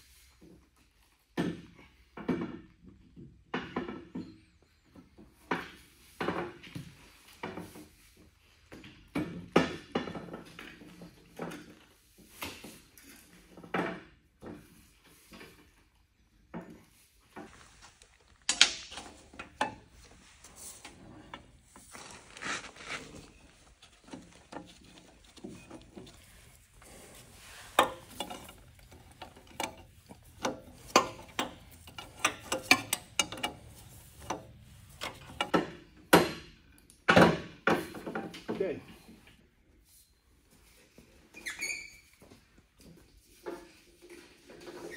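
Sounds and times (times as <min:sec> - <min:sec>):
metal tools clinking and scraping: 0:22.9 - 0:36.0.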